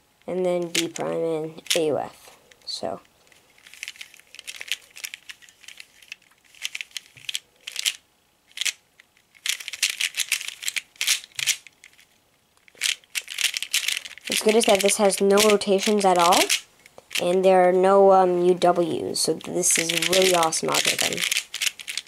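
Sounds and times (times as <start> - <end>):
puzzle cube clicking: 0.6 - 1.9, 3.6 - 12.0, 12.6 - 17.3, 19.4 - 22.0.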